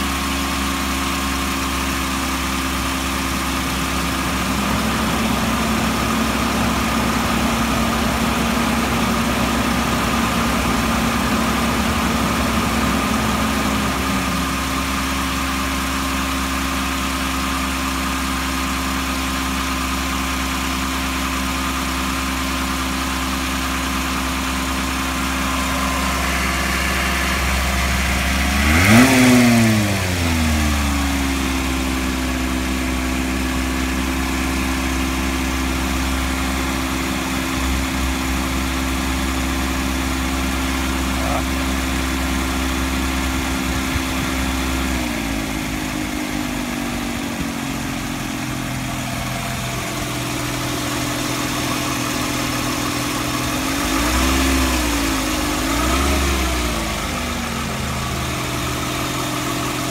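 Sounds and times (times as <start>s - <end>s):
car engine idling: 0.0s - 59.9s.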